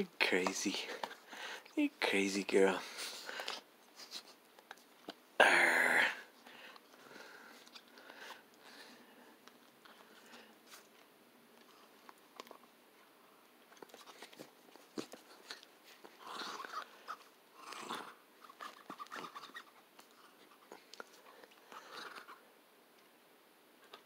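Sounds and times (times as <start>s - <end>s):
puppy chewing rubber ball: 13.7s - 22.4s.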